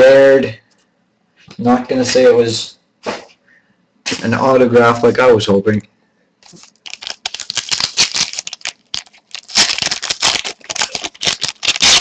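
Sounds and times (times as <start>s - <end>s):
foil wrapper crinkling: 6.4s - 12.0s.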